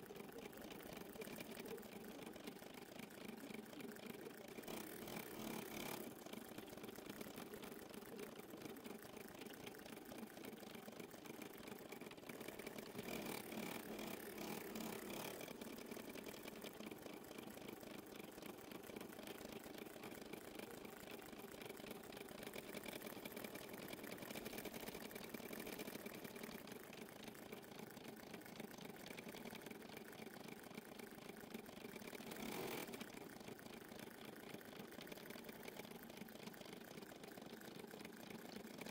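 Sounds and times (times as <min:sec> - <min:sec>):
embroidery machine stitching: 0:00.3 - 0:27.3.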